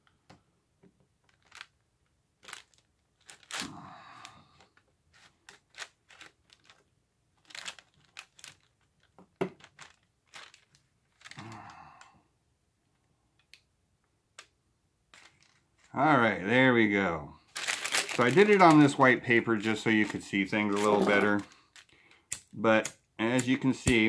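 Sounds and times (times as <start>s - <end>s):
rustling: 1.2s - 12.1s, 15.1s - 16.0s, 17.4s - 22.4s.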